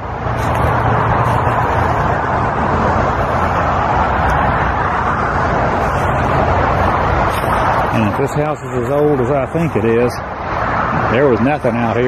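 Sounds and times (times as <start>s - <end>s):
highway traffic passing: 0.0s - 12.0s.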